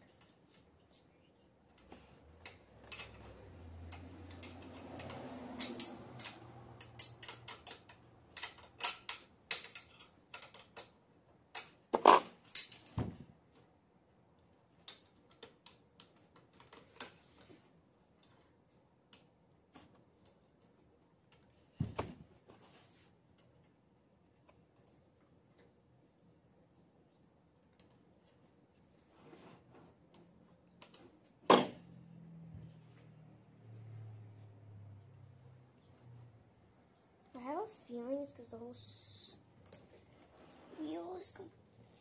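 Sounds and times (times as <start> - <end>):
wrench clicking: 3.9 - 10.9.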